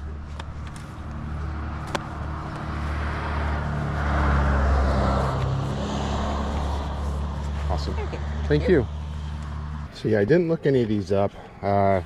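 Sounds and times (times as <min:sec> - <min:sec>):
vehicle passing: 0:00.0 - 0:11.2.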